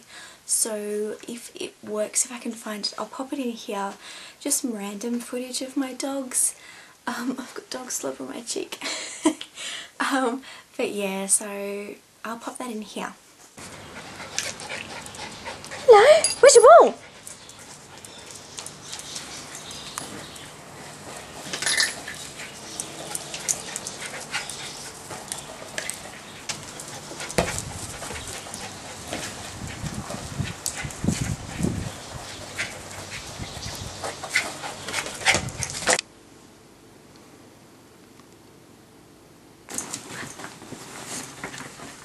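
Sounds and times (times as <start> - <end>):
paws and ball tapping on concrete: 21.4 - 31.2.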